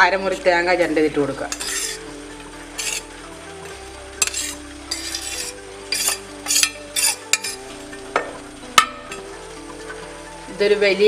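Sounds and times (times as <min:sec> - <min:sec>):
metal spoon scraping steel plate: 0:01.5 - 0:02.0, 0:02.8 - 0:03.1, 0:04.2 - 0:07.6.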